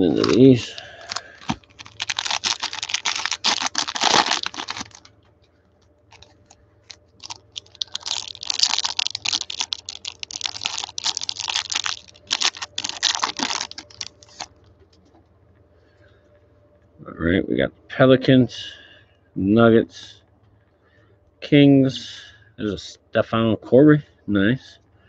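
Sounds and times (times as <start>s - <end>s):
foil wrapper crinkling and tearing: 0.0s - 5.1s, 6.1s - 14.6s.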